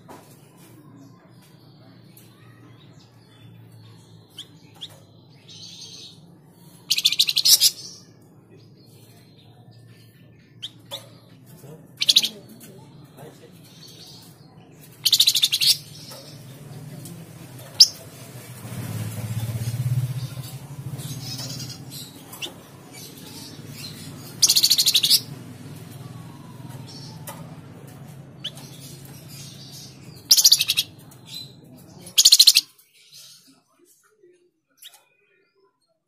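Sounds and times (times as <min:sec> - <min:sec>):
songbird trilling: 0:12.0 - 0:12.4, 0:15.0 - 0:16.5, 0:19.6 - 0:27.6, 0:28.3 - 0:32.7.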